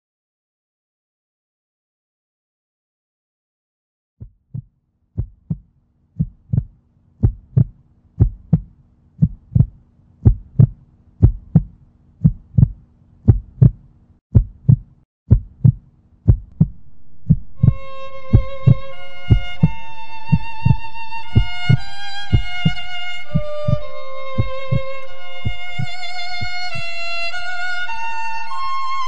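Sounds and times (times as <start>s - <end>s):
heartbeat thumps: 4.2s - 27.9s
string music: 16.5s - 29.0s.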